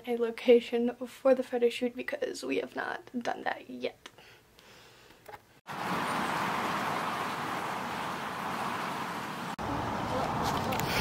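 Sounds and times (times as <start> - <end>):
steady rushing noise outdoors: 5.7 - 11.0.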